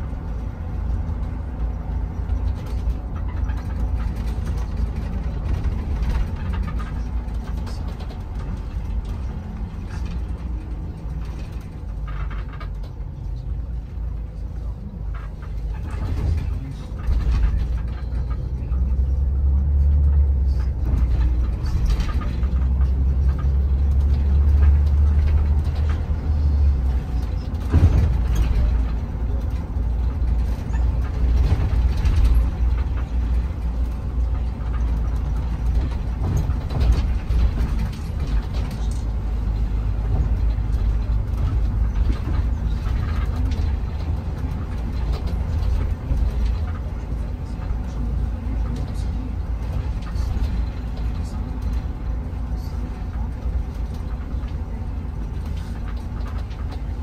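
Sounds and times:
bus engine and road rumble: 0:00.0 - 0:57.0
knocks and rattles: 0:00.0 - 0:57.0.

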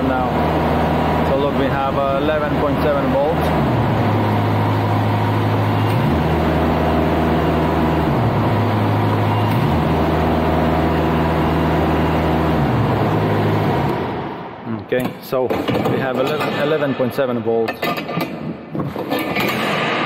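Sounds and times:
diesel engine revving and idling: 0:00.0 - 0:14.7.

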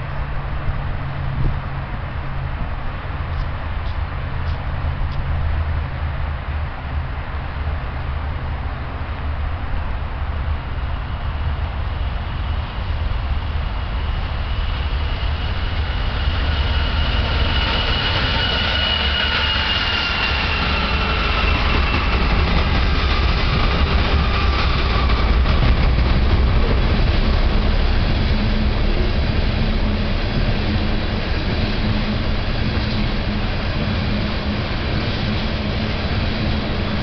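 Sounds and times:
train wheels rumbling on rail: 0:00.0 - 0:37.0
high whining tones: 0:13.6 - 0:36.9.

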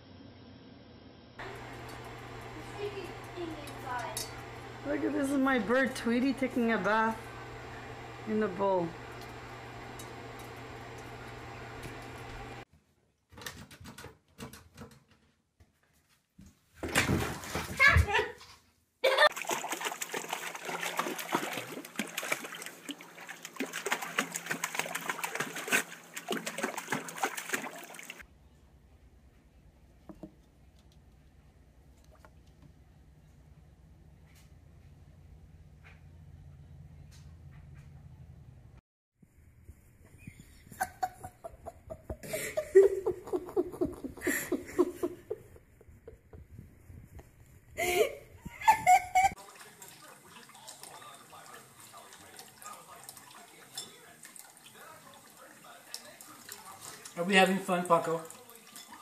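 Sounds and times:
dog splashing water: 0:16.8 - 0:17.9, 0:19.3 - 0:28.2, 0:49.3 - 0:59.0
person laughing: 0:19.0 - 0:19.4, 0:40.2 - 0:46.7, 0:47.7 - 0:49.4.

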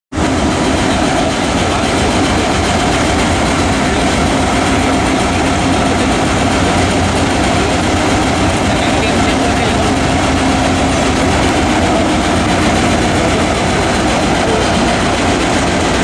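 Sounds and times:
diesel locomotive engine drone: 0:00.1 - 0:16.0.

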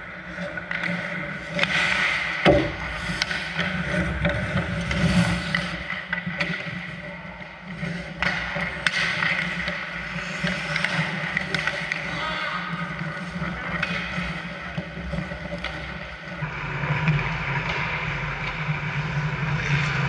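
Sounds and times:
hockey sticks and puck clacking: 0:00.0 - 0:20.0
skates scraping ice: 0:00.0 - 0:20.0
heavy thump: 0:02.4 - 0:03.0.

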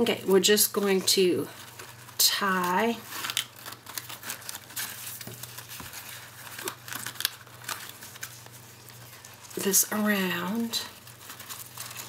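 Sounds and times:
ribbon rustling and crinkling: 0:00.0 - 0:12.0
hands handling paper clicks: 0:01.6 - 0:09.6.

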